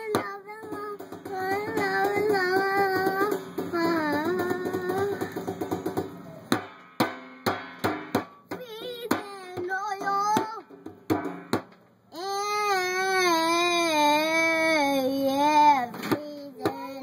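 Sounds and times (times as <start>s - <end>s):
child singing: 0.0s - 5.6s, 8.5s - 10.7s, 12.1s - 17.0s
hands slapping metal drum: 0.0s - 11.9s.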